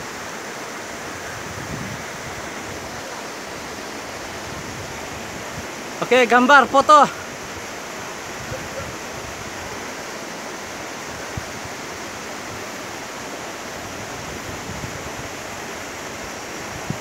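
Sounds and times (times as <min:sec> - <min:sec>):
waterfall rushing over rocks: 0:00.0 - 0:17.0.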